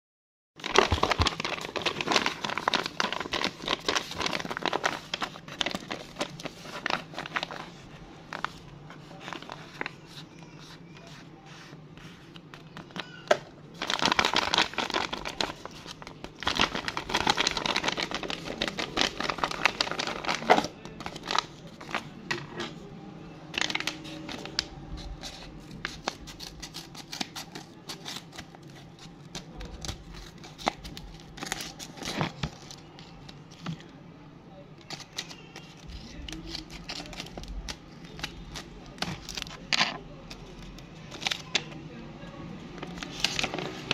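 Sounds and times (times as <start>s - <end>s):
paper bag and tape crinkling: 0.6s - 10.2s, 13.8s - 22.1s, 34.8s - 41.7s, 42.7s - 43.9s.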